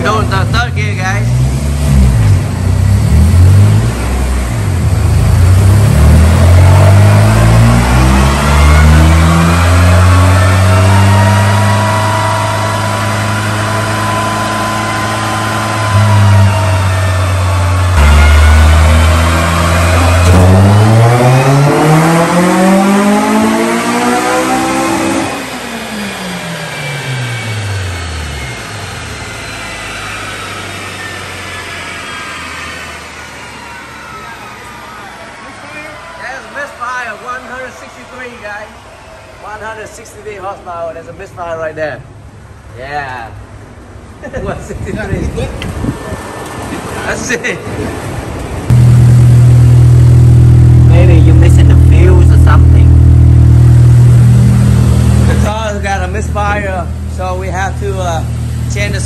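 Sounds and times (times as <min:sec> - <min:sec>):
car engine revving under load: 0:01.2 - 0:33.5, 0:48.0 - 0:59.0
dyno rollers winding down: 0:05.0 - 0:40.3, 0:48.0 - 0:59.0.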